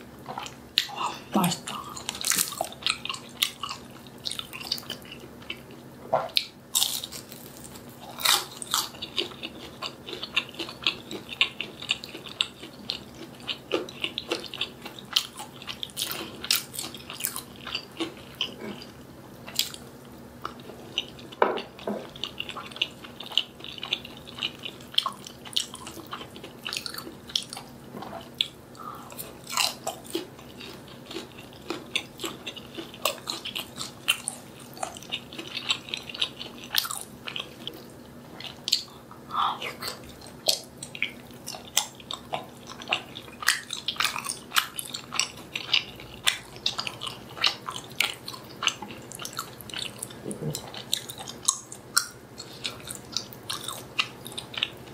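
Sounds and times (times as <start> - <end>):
chewing and biting food: 0.3 - 54.9.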